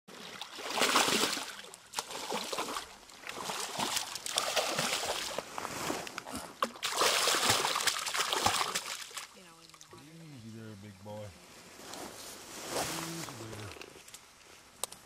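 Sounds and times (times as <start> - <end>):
fish splashing in water: 0.2 - 5.4, 6.6 - 9.8.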